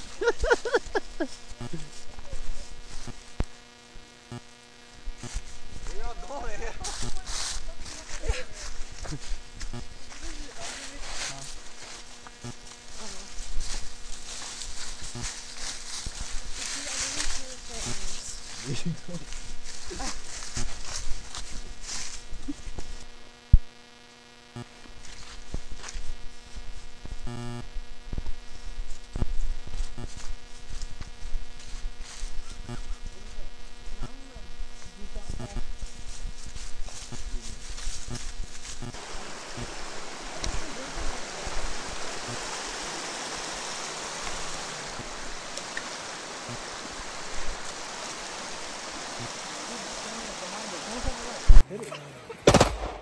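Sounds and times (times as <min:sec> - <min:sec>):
steady electrical hum: 0:00.0 - 0:51.6
steady rushing noise: 0:35.6 - 0:51.6.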